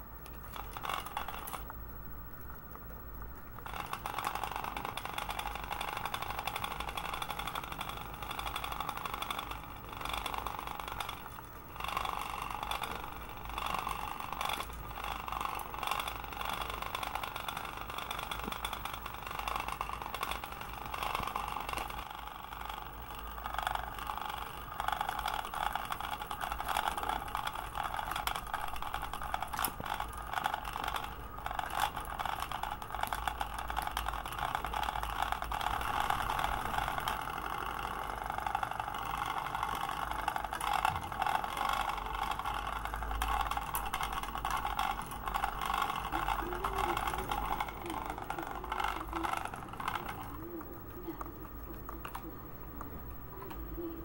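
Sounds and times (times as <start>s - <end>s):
small motor buzzing: 0.0s - 1.7s, 3.6s - 54.0s.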